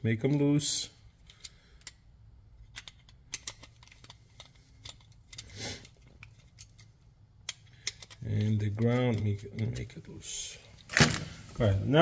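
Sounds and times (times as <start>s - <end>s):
screwdriver clicks and scrapes: 2.6s - 10.0s.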